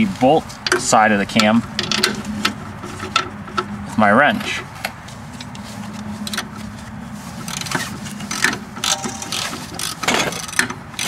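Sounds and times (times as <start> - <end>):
low steady hum: 1.6 - 9.8
ratchet clicks: 7.5 - 11.0
metal-on-metal knocks: 8.8 - 10.4.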